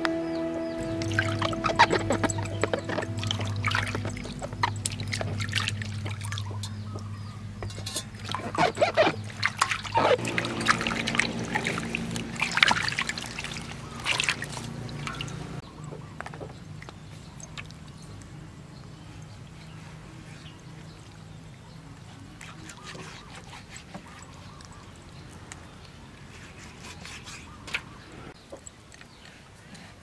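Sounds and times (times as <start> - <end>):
water splashing in a steel basin: 0.8 - 15.8, 16.5 - 19.8
hands washing vegetables: 0.8 - 30.0.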